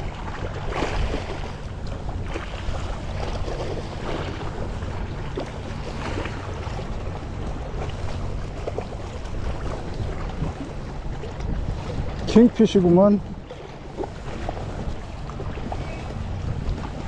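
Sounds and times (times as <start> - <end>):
seawater lapping: 0.0 - 17.0
wind buffeting microphone: 0.0 - 17.0.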